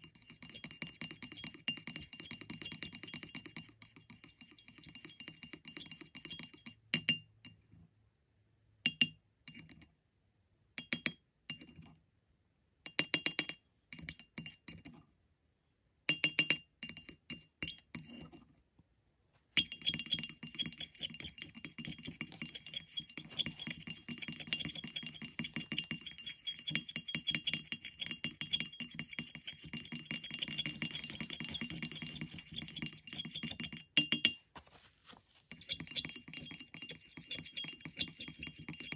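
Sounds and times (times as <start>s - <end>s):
paint scraping in dish: 19.6s - 33.8s, 34.6s - 38.9s
palette knife tapping ceramic: 19.6s - 34.4s, 35.5s - 38.9s.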